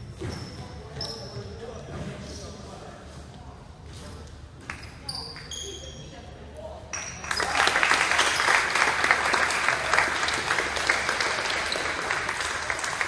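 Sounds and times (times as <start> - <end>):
audience applauding: 7.3 - 13.0.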